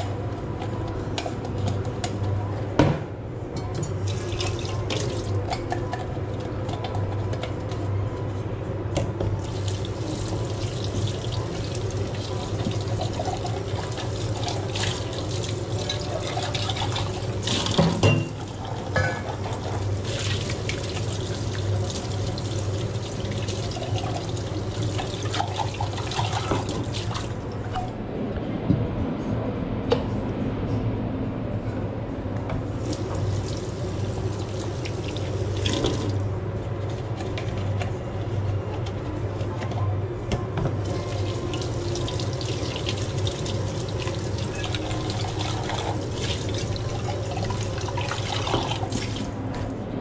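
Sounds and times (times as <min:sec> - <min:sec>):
water running from a tap: 0:09.4 - 0:17.9, 0:19.7 - 0:27.3, 0:32.8 - 0:36.2, 0:40.8 - 0:49.3
steady low hum: 0:18.4 - 0:50.0.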